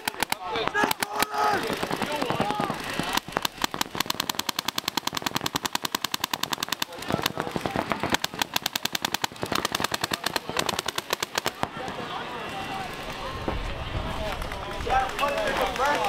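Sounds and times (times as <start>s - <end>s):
paintball markers rapid firing: 0.0s - 12.0s.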